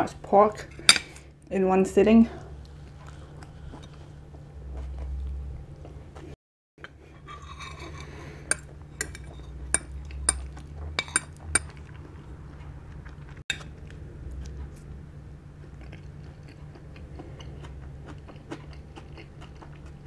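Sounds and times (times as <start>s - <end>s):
cutlery clinking on a ceramic plate: 7.3s - 11.8s.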